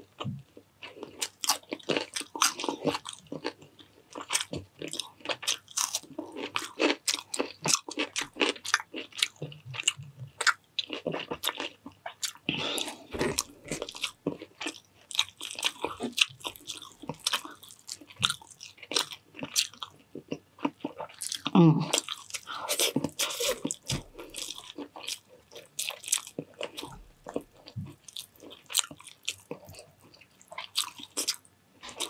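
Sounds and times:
person chewing crunchy food: 0.0 - 32.0.

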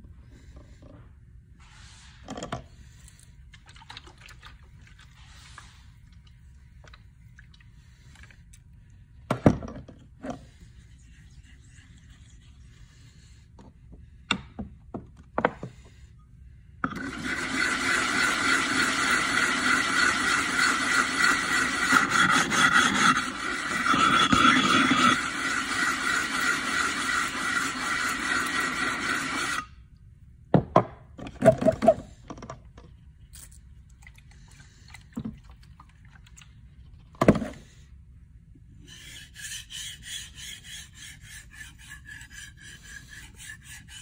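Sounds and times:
plate scraping on whetstone: 17.6 - 29.7.

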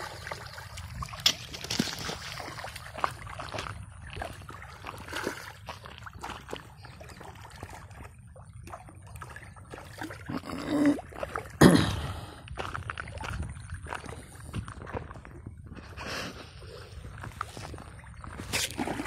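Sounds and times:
fish splashing water: 0.0 - 11.6, 18.3 - 19.0.

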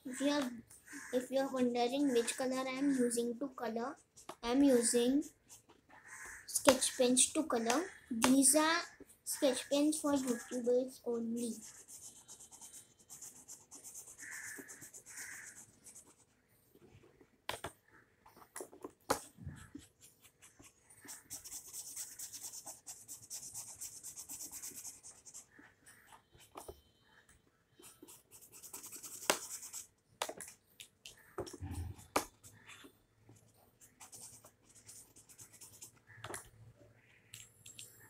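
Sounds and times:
felt-tip pen scratching on paper: 10.0 - 10.7, 11.4 - 16.4, 18.4 - 26.8, 27.8 - 29.9, 31.5 - 36.2.

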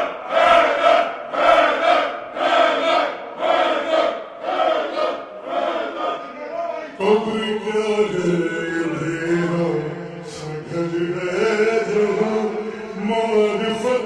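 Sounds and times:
man chanting with reverb: 6.2 - 14.0.

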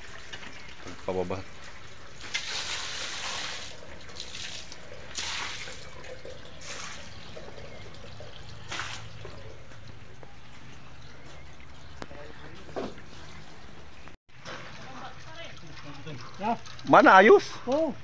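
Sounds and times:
water splashing onto earth: 2.2 - 7.3, 8.6 - 9.2.

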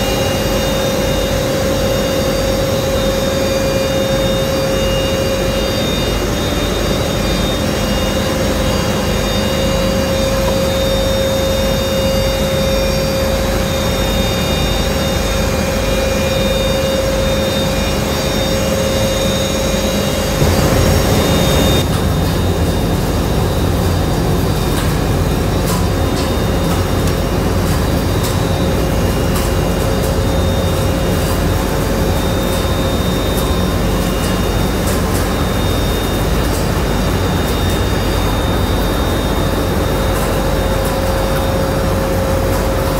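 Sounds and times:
machine hum: 0.0 - 25.5
machinery drone with whine: 0.0 - 42.9.

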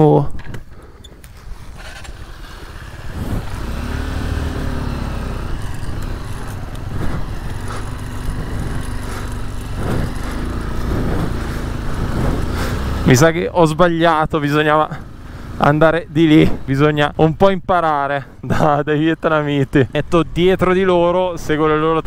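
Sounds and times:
motorcycle engine revving: 0.7 - 17.4.

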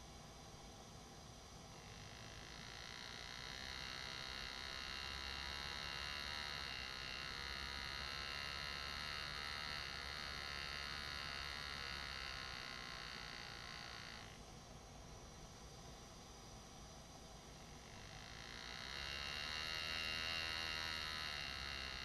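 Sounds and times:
air graver buzzing on metal: 1.8 - 14.4, 17.9 - 22.0.

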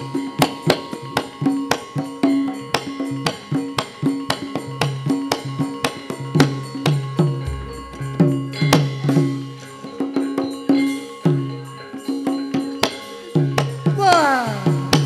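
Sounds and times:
drum strokes: 6.4 - 9.6
deep gong stroke: 7.4 - 8.9.

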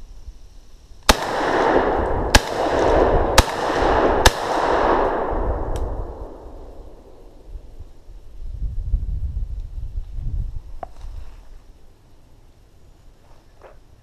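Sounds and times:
shotgun shots: 1.1 - 7.4.

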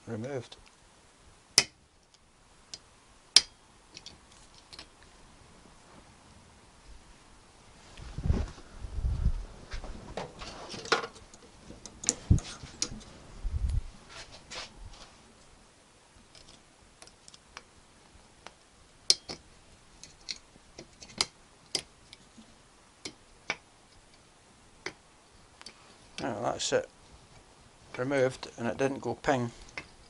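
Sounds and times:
sharp metal clicks: 3.4 - 4.9.

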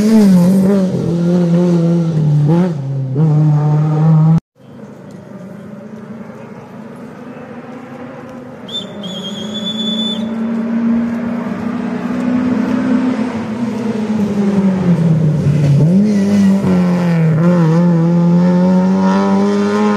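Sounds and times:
rally car engine approaching: 0.0 - 19.9
whistle blowing: 8.7 - 10.5.

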